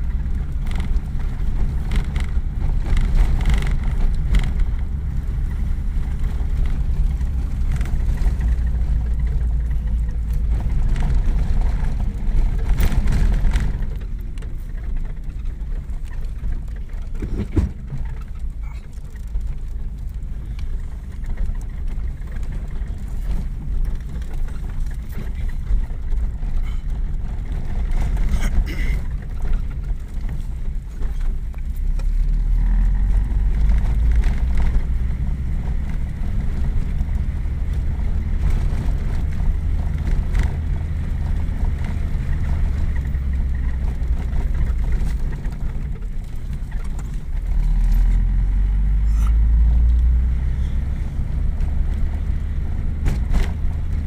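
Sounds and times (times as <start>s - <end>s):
knocks and rattles: 0.0s - 32.2s
engine and tyre rumble: 0.0s - 54.0s.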